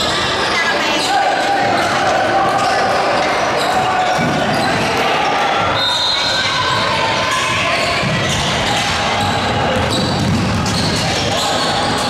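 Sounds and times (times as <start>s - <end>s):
echoing gym din: 0.0s - 12.0s.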